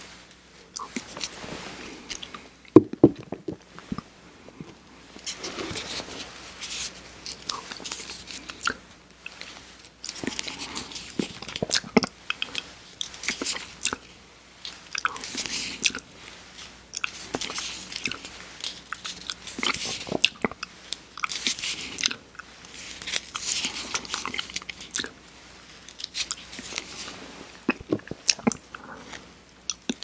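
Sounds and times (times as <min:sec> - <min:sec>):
wet mouth licking and smacking: 0:07.3 - 0:14.1.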